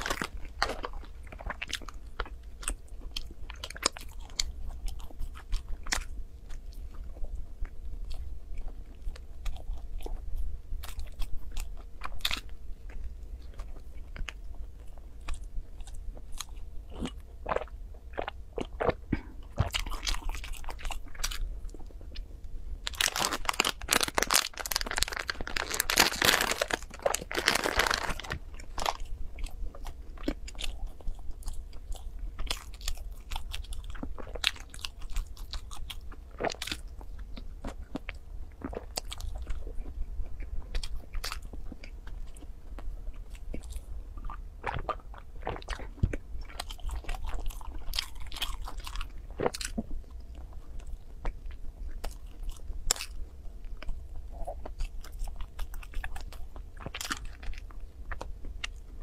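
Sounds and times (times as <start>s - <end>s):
person chewing buns: 0.0s - 59.0s
person sipping milk: 22.9s - 28.8s.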